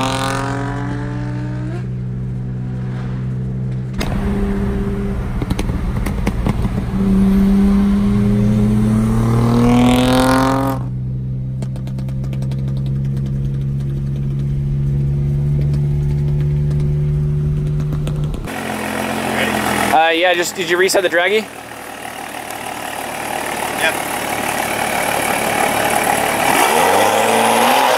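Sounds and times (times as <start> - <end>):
car engine revving: 0.0 - 27.9.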